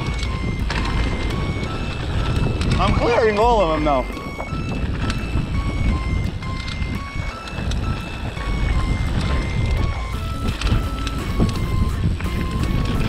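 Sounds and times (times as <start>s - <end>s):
electronic music with beeping notes: 0.0s - 13.0s
wind and tyres rumbling: 0.0s - 13.0s.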